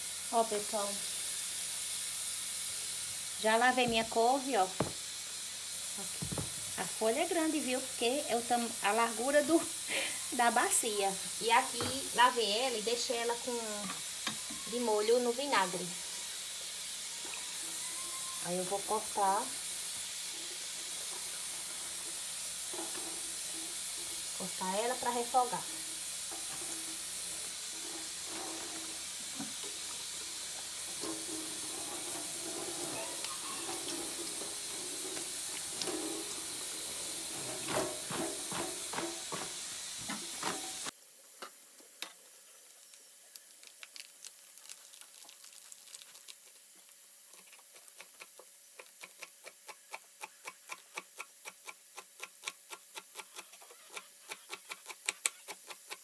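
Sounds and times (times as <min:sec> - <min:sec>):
food sizzling on stove: 0:00.0 - 0:56.0
knife chopping on wooden board: 0:04.8 - 0:05.0
knocks: 0:04.8 - 0:05.0, 0:06.2 - 0:06.6.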